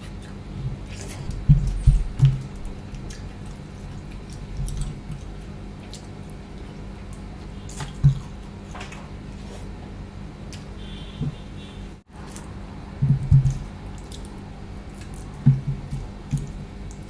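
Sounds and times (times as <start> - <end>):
wet chewing and lip smacks: 2.2 - 8.4, 13.5 - 15.3.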